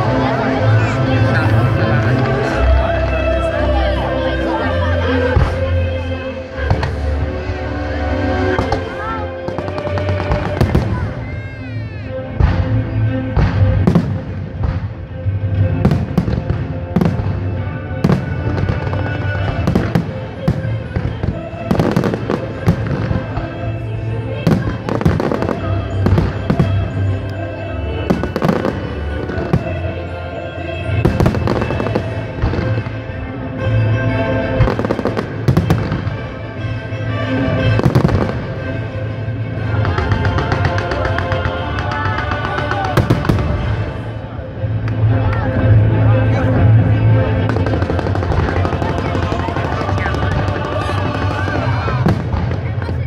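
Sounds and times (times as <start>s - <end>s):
music playing: 0.0s - 53.0s
fireworks bangs and crackles: 6.5s - 7.4s, 8.5s - 33.7s, 34.4s - 45.5s, 46.3s - 53.0s
fireworks bursting: 8.6s - 11.4s, 30.8s - 33.1s, 39.7s - 44.1s, 47.4s - 53.0s.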